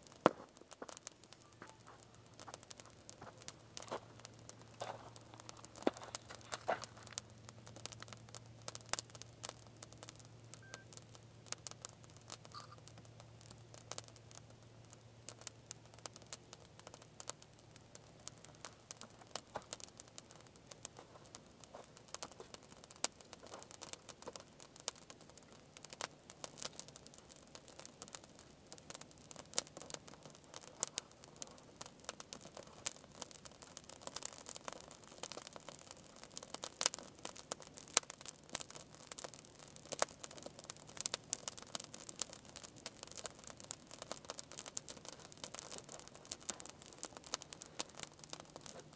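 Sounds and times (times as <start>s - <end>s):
twig fire crackling and snapping: 0.0s - 48.9s.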